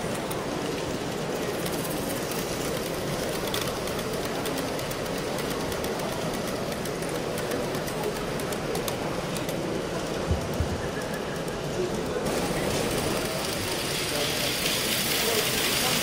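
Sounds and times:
model train rolling on track: 0:00.0 - 0:16.0
wheels clicking on rails: 0:00.0 - 0:16.0.

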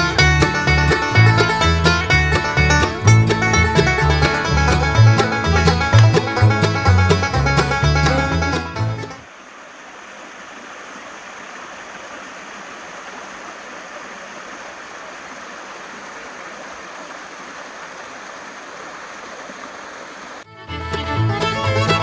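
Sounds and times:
stream rushing over rocks: 0:09.2 - 0:20.5.

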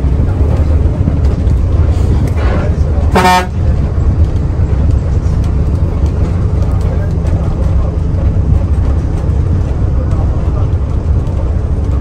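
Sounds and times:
diesel bus engine rumble: 0:00.0 - 0:12.0
bus horn toot: 0:03.0 - 0:03.8.

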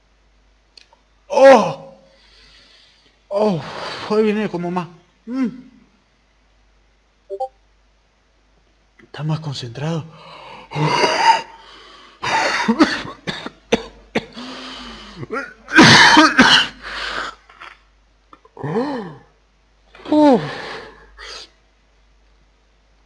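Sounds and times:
man crying out in pain: 0:01.3 - 0:02.1, 0:05.3 - 0:05.8, 0:10.7 - 0:11.6, 0:20.0 - 0:21.0
man coughing hard: 0:10.7 - 0:11.6, 0:12.2 - 0:14.5, 0:15.2 - 0:16.8.

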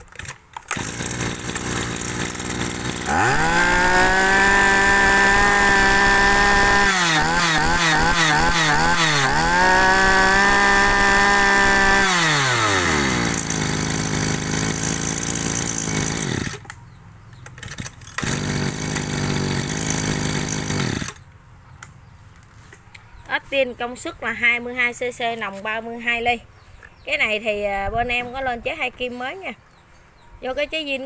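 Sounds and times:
brush cutter engine revving: 0:00.0 - 0:16.8, 0:17.6 - 0:21.3.

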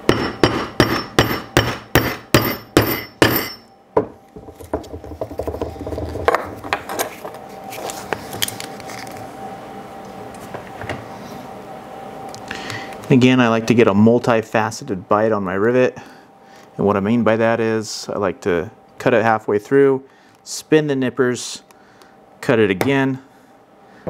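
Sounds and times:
hammer striking metal tool: 0:00.0 - 0:04.1.

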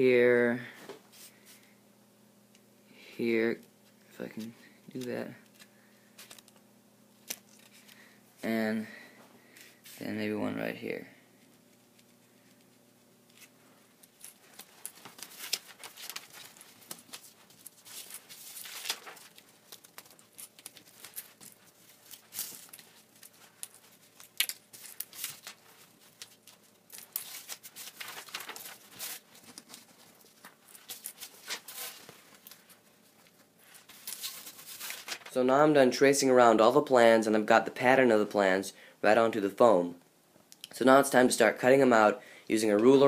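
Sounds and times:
paper rustling: 0:14.3 - 0:35.4.

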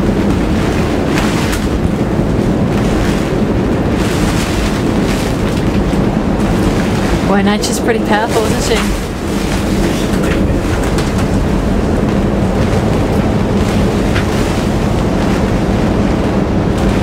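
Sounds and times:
steady low hum: 0:00.0 - 0:17.0
wind roaring: 0:00.0 - 0:17.0.

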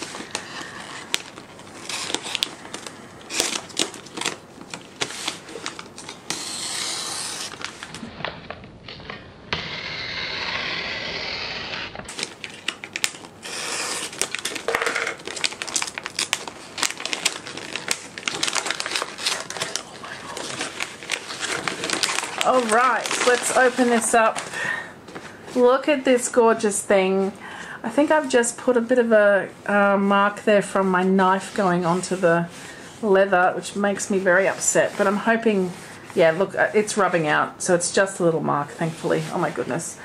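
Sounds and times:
paper tearing: 0:00.0 - 0:08.1, 0:09.5 - 0:24.4
wrapping paper crinkling: 0:00.0 - 0:09.2, 0:12.1 - 0:24.7.

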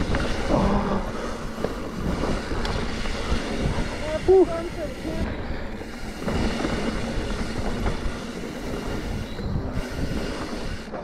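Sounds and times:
bike rattling on dirt trail: 0:00.0 - 0:11.0.

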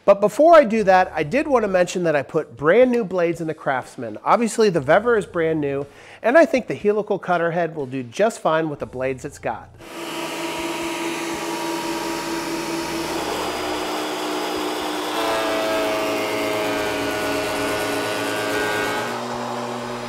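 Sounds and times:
thickness planer whine: 0:09.8 - 0:20.0.

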